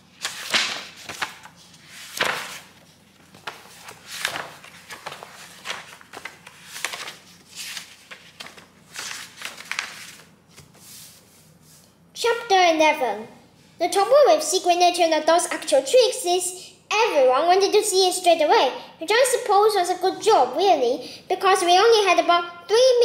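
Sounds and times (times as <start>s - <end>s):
book pages rustling: 0.0s - 11.9s.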